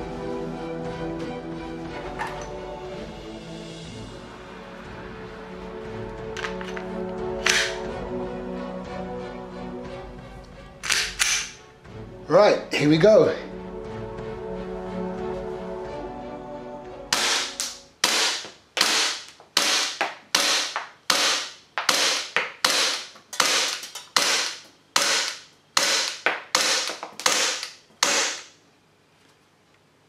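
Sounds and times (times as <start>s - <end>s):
pistol slide cycling: 6.4s - 7.8s, 10.8s - 11.6s
airsoft pistol shots: 17.2s - 28.6s.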